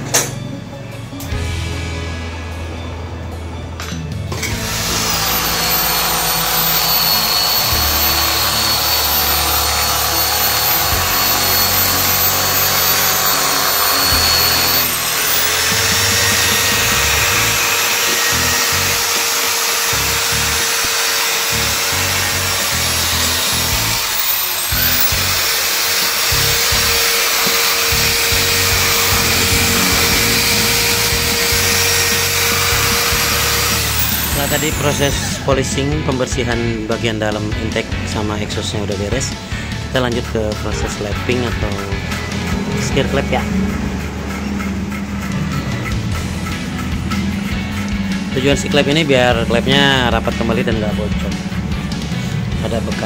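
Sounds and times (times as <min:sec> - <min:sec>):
background music: 0:00.0 - 0:53.0
electric drill whining: 0:03.8 - 0:35.5.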